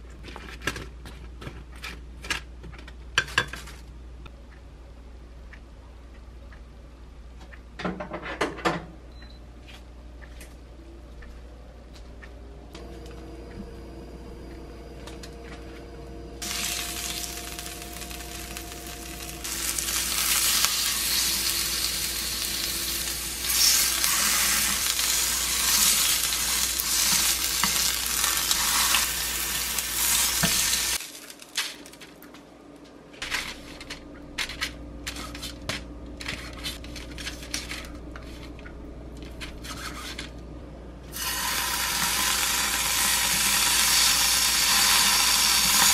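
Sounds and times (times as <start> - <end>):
meat sizzling in a frying pan: 16.4 - 31.1, 41.2 - 45.9.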